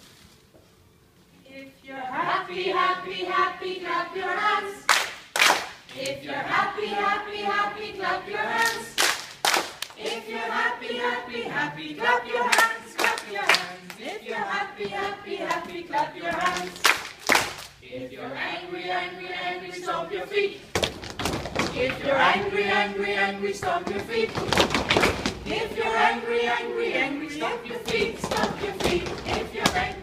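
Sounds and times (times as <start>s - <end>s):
group of adults singing: 1.4s - 4.9s, 5.9s - 9.0s, 10.0s - 17.2s, 17.8s - 20.8s, 21.6s - 30.0s
sharp handclaps: 4.9s - 5.8s, 8.7s - 10.2s, 12.5s - 14.0s, 16.3s - 17.8s.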